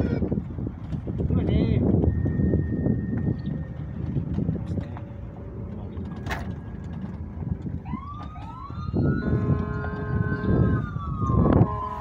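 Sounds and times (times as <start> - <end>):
motorcycle rumble and wind noise: 0.0 - 12.0
electronic siren wailing: 7.8 - 12.0.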